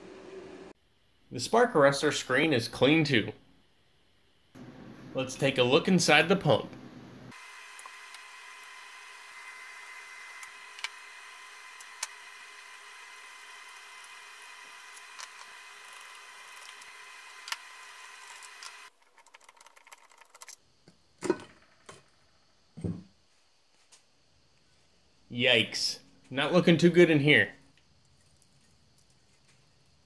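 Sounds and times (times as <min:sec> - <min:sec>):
steady background hum: 0:02.4 - 0:07.4.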